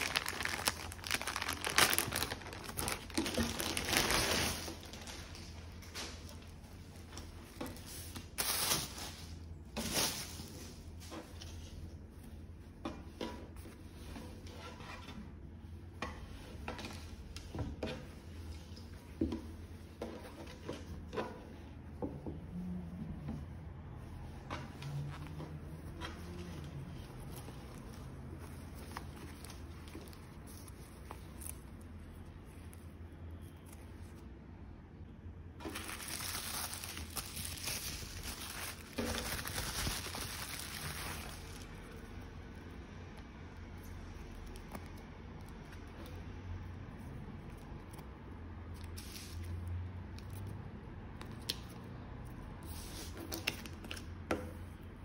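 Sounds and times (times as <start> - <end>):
bubble wrap crinkling: 0.0 - 12.2, 24.8 - 34.3, 35.6 - 42.8, 46.9 - 50.5
fabric rustling: 0.0 - 12.4, 24.0 - 32.9, 35.6 - 42.2.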